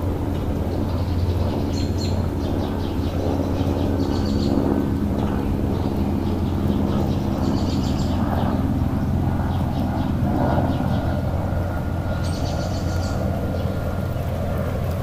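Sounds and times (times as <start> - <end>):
low motor drone: 0.0 - 15.0
small bird trilling: 7.0 - 8.2, 12.2 - 13.8.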